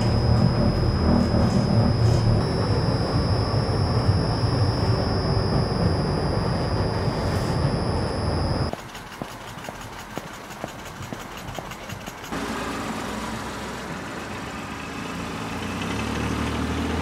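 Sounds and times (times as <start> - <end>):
high whine: 0.0 - 8.8.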